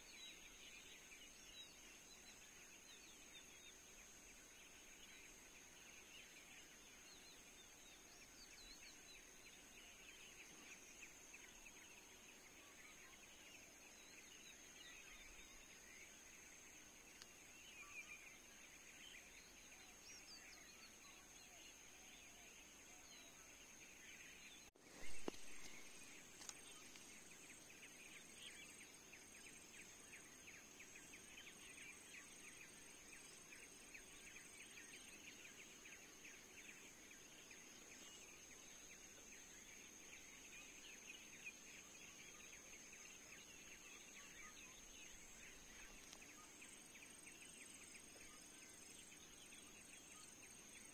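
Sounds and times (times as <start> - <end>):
high insect drone: 0.1 - 50.9.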